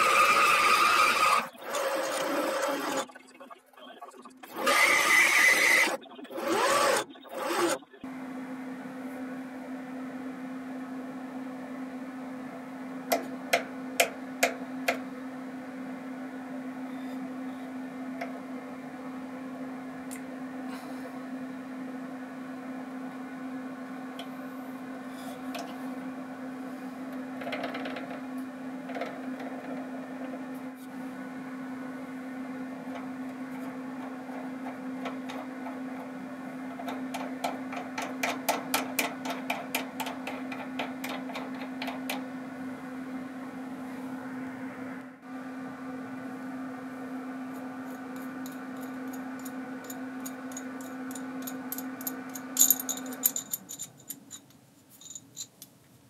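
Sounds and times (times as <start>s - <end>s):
nut rattling along threaded rod: 48.0s - 55.7s.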